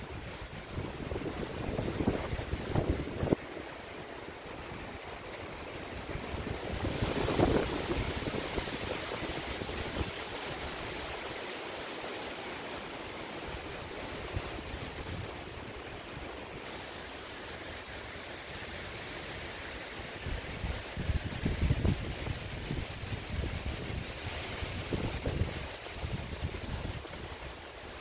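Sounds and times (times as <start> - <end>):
wind buffeting microphone: 0.0 - 3.4, 6.0 - 11.2, 20.1 - 27.6
wind rustling leaves: 0.0 - 28.0.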